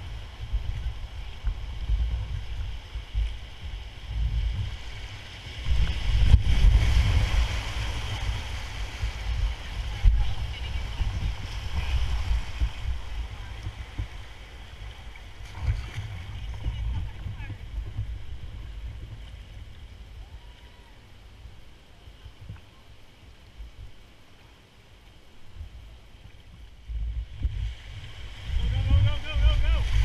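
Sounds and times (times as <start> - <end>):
wind buffeting microphone: 0.0 - 20.6, 25.5 - 30.0
whitewater rushing: 27.5 - 30.0.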